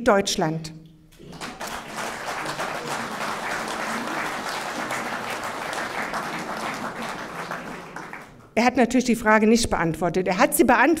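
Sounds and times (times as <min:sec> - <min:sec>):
audience applauding: 0:01.2 - 0:08.6.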